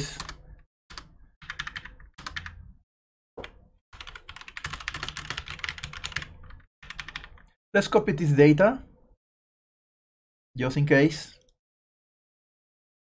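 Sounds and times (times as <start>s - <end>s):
typing on computer keyboard: 0.0s - 2.6s, 3.4s - 7.5s.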